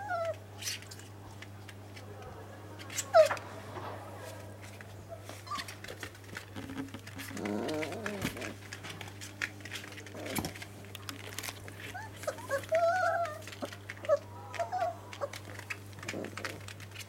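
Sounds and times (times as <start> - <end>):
puppies squealing and whining: 0.0 - 0.8, 3.0 - 3.4, 5.3 - 6.1, 11.2 - 16.4.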